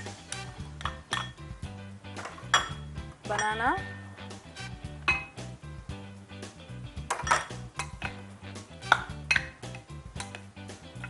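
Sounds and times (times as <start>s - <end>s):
glass bowls clinking: 0.0s - 1.4s, 2.2s - 4.2s, 5.0s - 5.5s, 7.1s - 8.2s, 8.9s - 10.5s
background music with steady beat: 0.0s - 11.0s.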